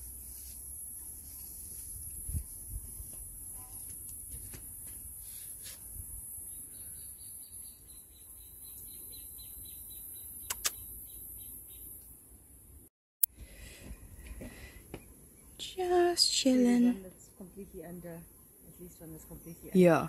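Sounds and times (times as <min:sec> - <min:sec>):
bird chirping: 0:06.4 - 0:12.2
sharp clicks: 0:10.4 - 0:10.8.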